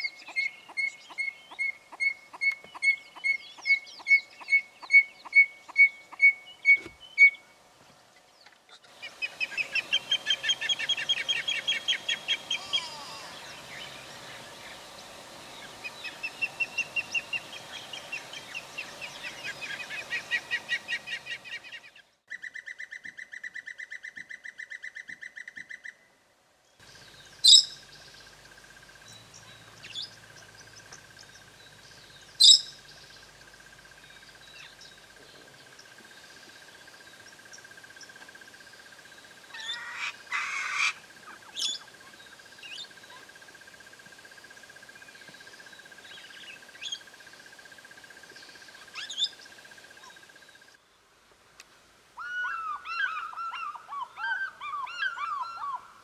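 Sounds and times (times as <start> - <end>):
bird trilling phrases: 8.7 - 14.8, 39.5 - 43.3
sharp shrill bird calls: 8.8 - 14.9, 27.0 - 28.2, 31.6 - 33.2, 39.5 - 43.3, 48.5 - 49.4, 52.2 - 55.9
high piping bird notes: 8.8 - 22.1.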